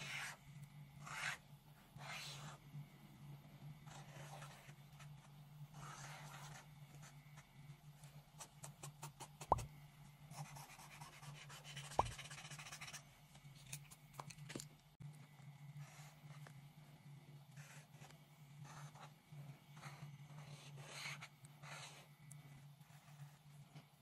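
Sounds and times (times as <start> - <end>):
marker scratching on paper: 0.0 - 0.4, 1.0 - 1.4, 2.0 - 2.6, 3.9 - 6.7, 10.3 - 13.0, 17.6 - 22.1, 22.8 - 23.4.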